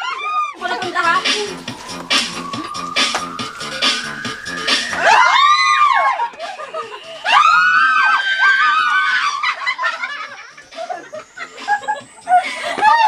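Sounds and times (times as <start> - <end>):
women screaming: 0.0 - 3.0, 4.7 - 13.0
dance music beat: 0.6 - 7.6, 9.8 - 13.0
giggling and laughter: 5.9 - 7.3, 8.0 - 13.0.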